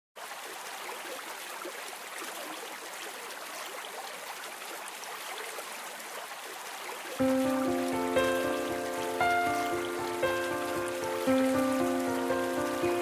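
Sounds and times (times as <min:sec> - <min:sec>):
running water: 0:00.2 - 0:13.0
steady rain: 0:04.3 - 0:13.0.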